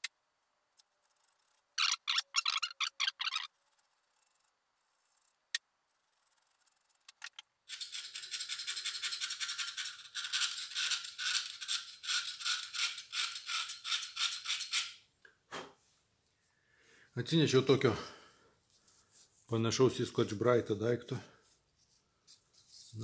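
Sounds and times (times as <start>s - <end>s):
screwdriver scraping metal: 6.9s - 15.0s.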